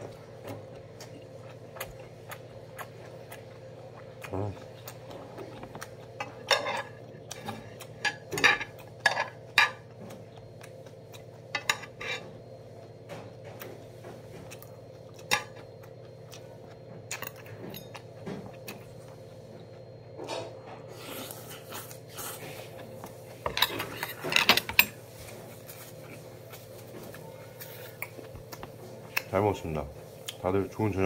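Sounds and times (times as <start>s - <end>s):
utensils clinking against dishes: 6.2s - 9.8s, 11.5s - 12.3s, 17.1s - 18.2s, 23.4s - 25.0s.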